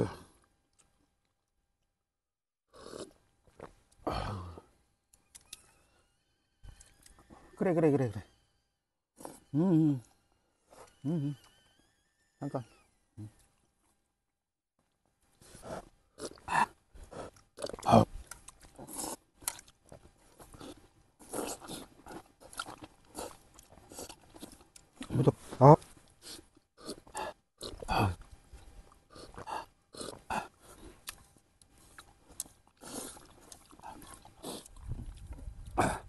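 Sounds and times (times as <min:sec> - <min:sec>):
slurping noodles: 0:02.7 - 0:03.7, 0:15.5 - 0:19.7, 0:20.4 - 0:24.6, 0:29.1 - 0:31.1, 0:31.9 - 0:36.0
chewing: 0:02.8 - 0:04.0, 0:05.1 - 0:05.8, 0:15.3 - 0:36.0
person grunting: 0:27.9 - 0:28.2, 0:35.8 - 0:36.0.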